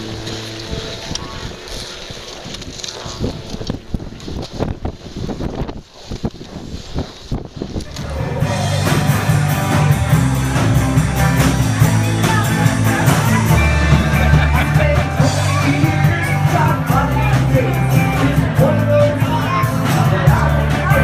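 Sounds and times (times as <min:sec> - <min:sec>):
rock band playing live: 0:07.9 - 0:21.0
person singing: 0:11.9 - 0:21.0.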